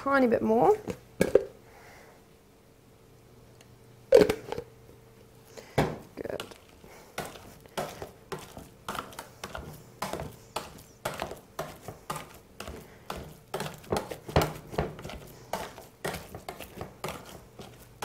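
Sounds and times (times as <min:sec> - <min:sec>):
potato masher squishing: 0:06.2 - 0:18.0.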